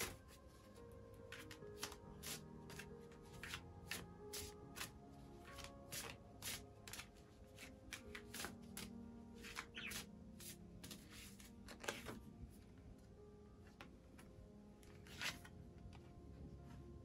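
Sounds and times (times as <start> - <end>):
soft background music: 0.0 - 17.0
cards being shuffled: 1.3 - 12.2, 15.0 - 15.5.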